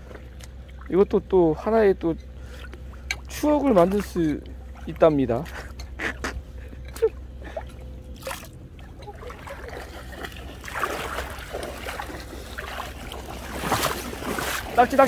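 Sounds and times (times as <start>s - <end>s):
seawater splashing and sloshing: 0.0s - 1.3s, 2.3s - 15.0s.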